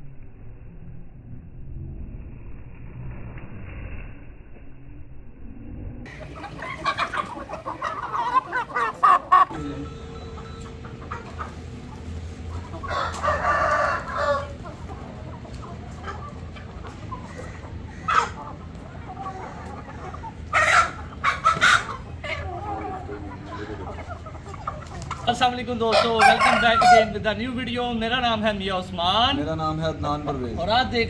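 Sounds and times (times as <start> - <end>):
roosters clucking: 6.0 - 31.0
roosters crowing: 6.1 - 27.3.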